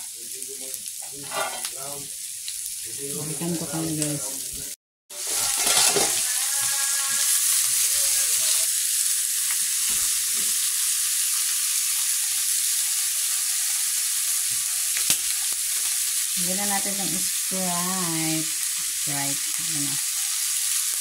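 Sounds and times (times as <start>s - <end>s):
shrimp sizzling in a pan: 0.0s - 21.0s
spatula scraping a pan: 1.0s - 1.7s, 5.1s - 8.4s.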